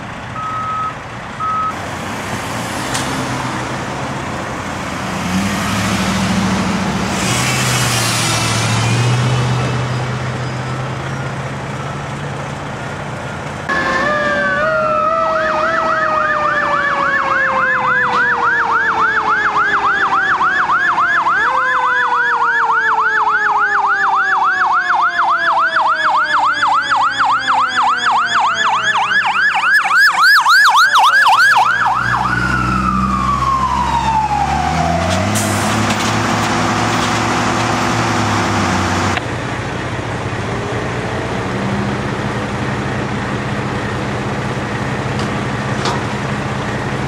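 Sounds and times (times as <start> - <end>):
truck engine running: 0.0 - 20.7, 25.9 - 47.0
low falling siren tone: 13.7 - 35.6
fire engine siren yelping: 13.7 - 39.2.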